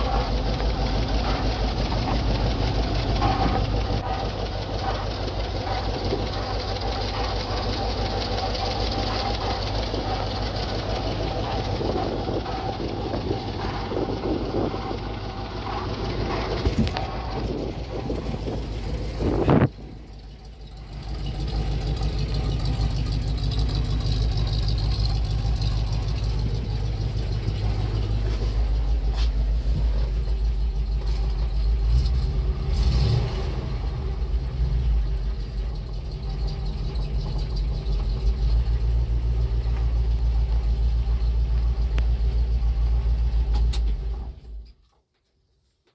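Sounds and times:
truck engine idling: 0.0s - 44.7s.

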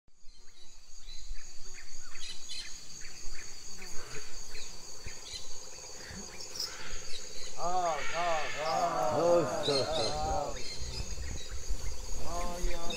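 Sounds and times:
insect chorus drone: 0.2s - 12.9s
rising and falling animal calls: 7.5s - 11.6s.

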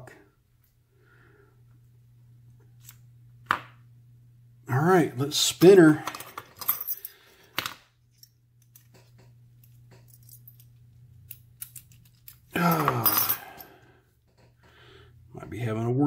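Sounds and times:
keys jangling: 6.1s - 7.3s, 9.6s - 13.8s.

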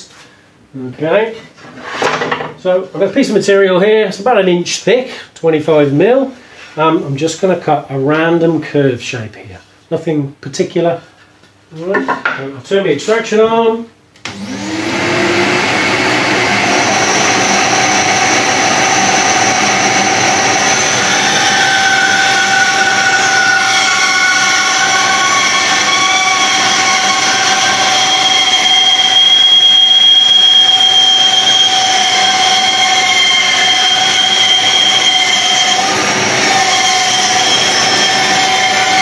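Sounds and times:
vacuum dust extractor running: 14.2s - 39.0s
bandsaw cutting wood: 14.3s - 39.0s
high whining tones: 14.4s - 39.0s.

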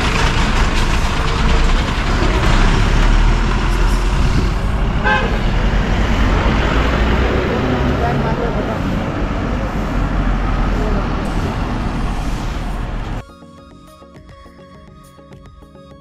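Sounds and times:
bus engine passing: 0.0s - 13.2s
street traffic: 0.0s - 13.2s
horn toot: 5.0s - 5.6s.

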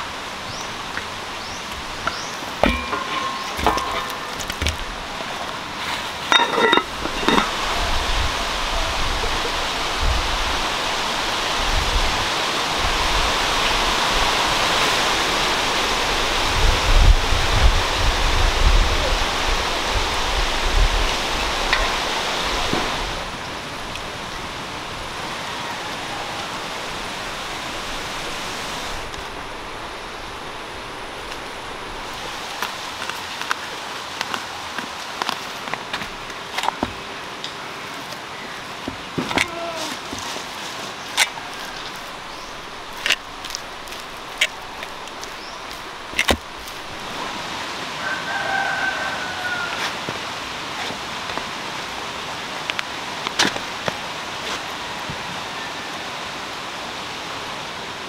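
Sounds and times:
wind gusts hitting microphone: 0.0s - 33.4s
wind rushing through trees: 0.0s - 58.0s.

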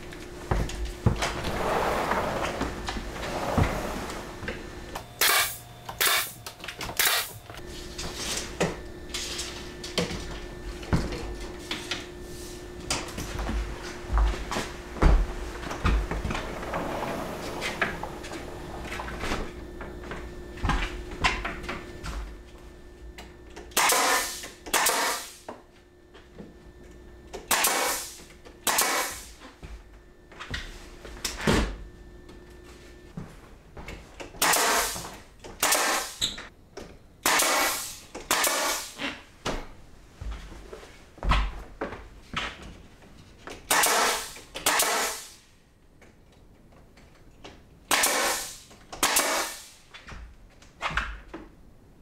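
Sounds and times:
nail gun shots: 5.2s - 6.4s, 7.0s - 7.4s, 23.7s - 25.4s, 27.5s - 29.3s, 34.4s - 35.0s, 35.6s - 36.2s, 37.2s - 39.0s, 43.7s - 45.4s, 47.9s - 49.8s.

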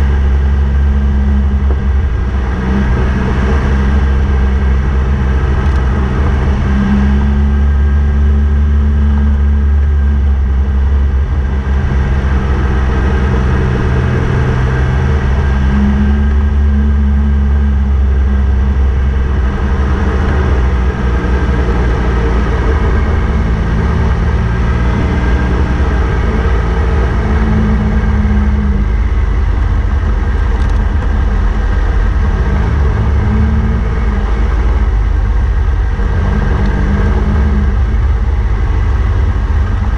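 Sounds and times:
motorcycle engine running: 0.0s - 39.9s.

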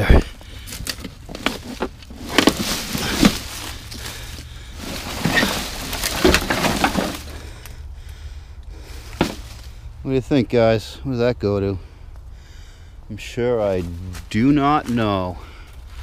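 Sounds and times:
twigs cracking: 0.0s - 8.2s
dry leaves crunching: 0.2s - 7.7s, 13.5s - 16.0s.

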